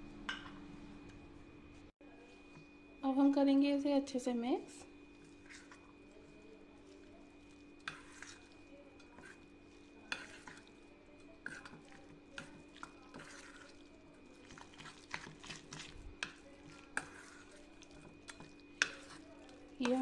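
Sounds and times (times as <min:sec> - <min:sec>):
spoon scraping thick batter: 0:05.1 - 0:20.0.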